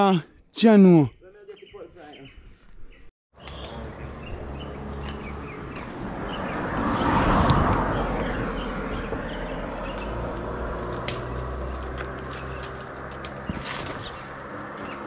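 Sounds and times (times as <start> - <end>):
small birds chirping: 0.3 - 6.9, 7.5 - 10.6, 12.1 - 15.0
vehicle engine passing: 3.4 - 15.0.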